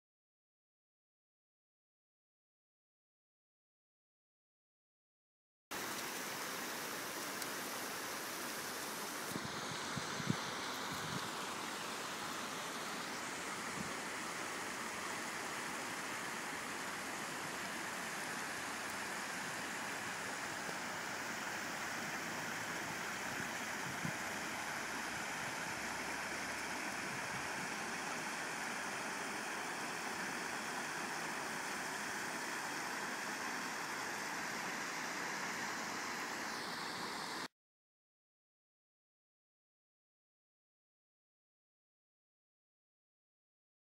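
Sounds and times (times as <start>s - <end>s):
water running over gravel: 5.7s - 37.0s.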